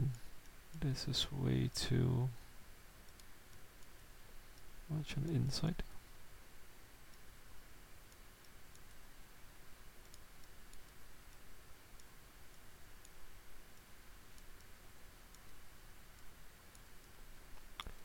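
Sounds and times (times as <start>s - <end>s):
low hiss: 0.0s - 18.0s
computer mouse clicks: 3.0s - 4.7s, 8.1s - 9.0s, 10.0s - 13.2s, 15.3s - 15.6s.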